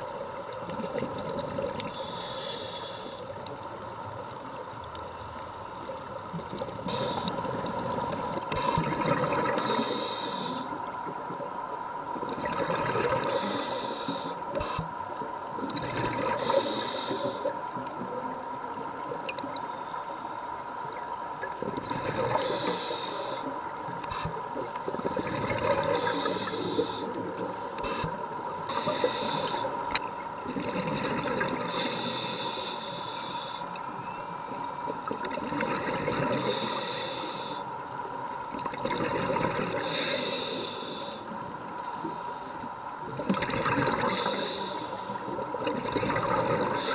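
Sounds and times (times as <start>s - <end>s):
regulator hissing inhales: 1.9s - 3.3s, 6.8s - 7.5s, 9.6s - 10.8s, 13.2s - 14.9s, 16.4s - 17.5s, 22.4s - 24.4s, 25.9s - 27.2s, 27.8s - 29.8s, 31.7s - 33.8s, 36.4s - 37.8s, 39.8s - 41.4s, 44.0s - 45.2s
bubbling gurgling exhales: 6.5s - 9.8s, 12.3s - 13.4s, 24.9s - 26.8s, 43.2s - 44.5s, 45.5s - 46.9s.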